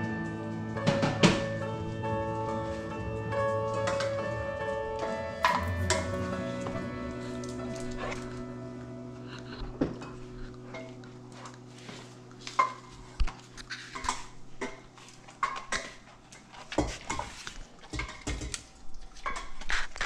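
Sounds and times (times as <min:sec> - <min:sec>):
dog claws clicking on tiles: 0:12.5 - 0:20.0.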